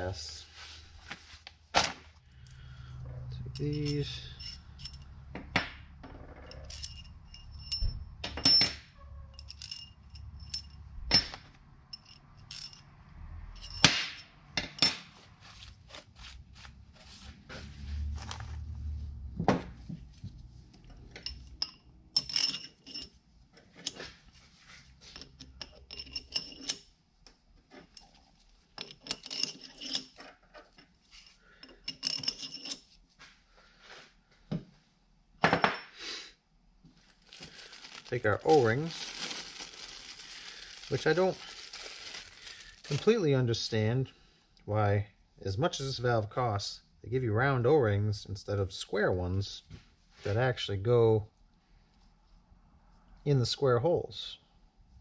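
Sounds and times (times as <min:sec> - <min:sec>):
steel rods clinking: 0:03.5 - 0:05.8.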